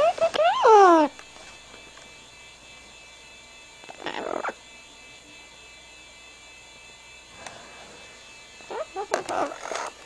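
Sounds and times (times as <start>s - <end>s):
electrical hum: 0.0s - 10.0s
parrot harsh call: 3.9s - 4.6s.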